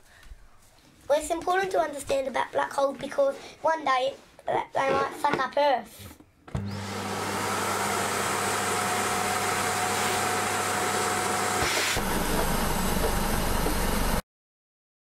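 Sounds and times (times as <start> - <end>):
vacuum cleaner running: 6.5 - 14.2
vacuum cleaner switching on: 6.5 - 14.2.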